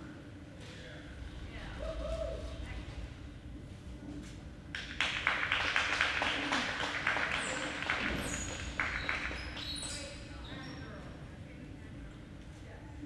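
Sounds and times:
audience applauding: 4.8s - 9.8s.

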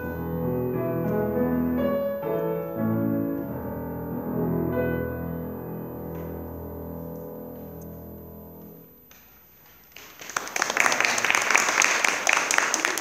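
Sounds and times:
piano chord held: 0.0s - 9.1s
applause: 9.6s - 13.0s.

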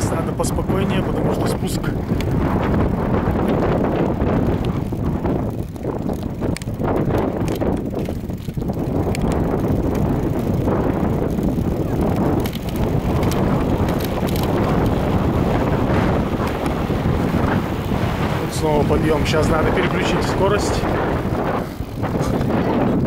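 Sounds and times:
tyres rumbling on asphalt: 0.0s - 23.0s
wind rushing over microphone: 0.0s - 23.0s
clicks and rattles: 4.3s - 15.1s.

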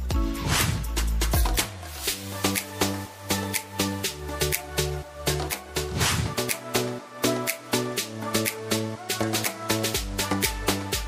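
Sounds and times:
electronic music with bass beat: 0.0s - 11.0s
hiss: 1.8s - 3.0s.

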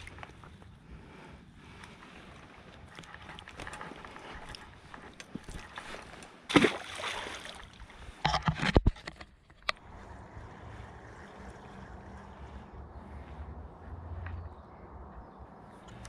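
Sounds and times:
water splashing: 5.5s - 7.9s.

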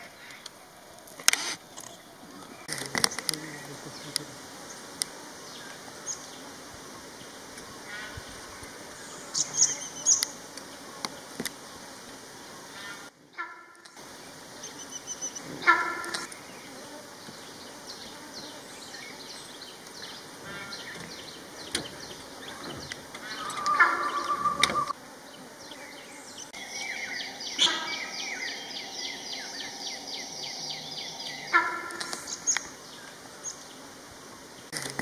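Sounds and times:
birds calling: 0.0s - 35.0s.

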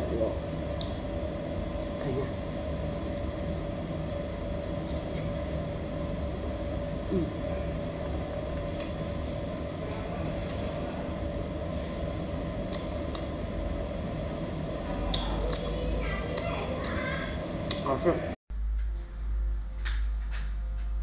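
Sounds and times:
low rumbling hum: 0.0s - 21.0s.

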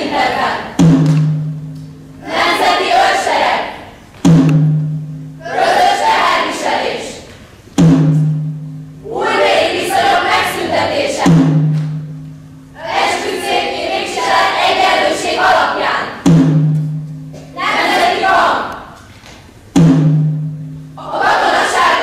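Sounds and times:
deep drum beats: 0.0s - 2.1s, 4.2s - 5.4s, 7.8s - 9.0s, 10.4s - 12.8s, 16.2s - 17.6s, 19.7s - 21.4s.

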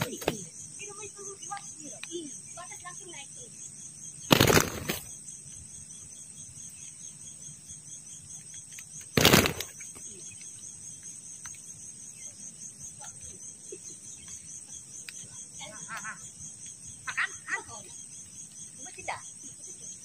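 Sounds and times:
insects chirring: 0.0s - 20.0s.

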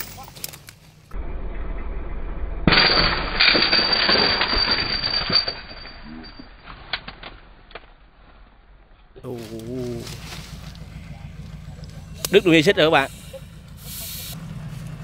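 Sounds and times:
tyre chain clattering and banging: 0.0s - 0.6s, 2.7s - 7.6s
truck engine labouring: 9.3s - 15.0s.

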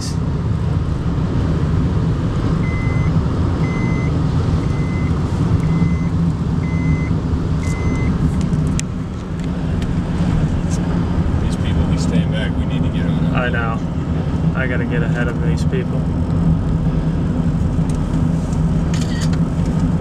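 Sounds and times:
car road and engine noise: 0.0s - 20.0s
short electronic beeps: 2.6s - 8.2s.

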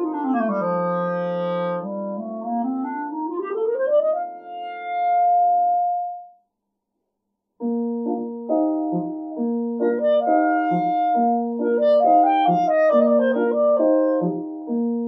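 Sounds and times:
piano chords: 0.0s - 6.3s, 7.6s - 15.0s
clarinet: 0.0s - 6.4s, 9.8s - 15.0s.

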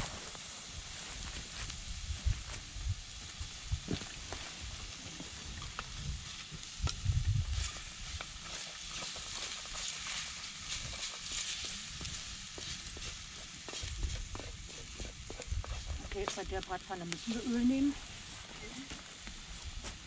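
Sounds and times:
meat sizzling in a frying pan: 0.0s - 20.0s
spatula scraping and tapping pan: 7.6s - 16.5s.

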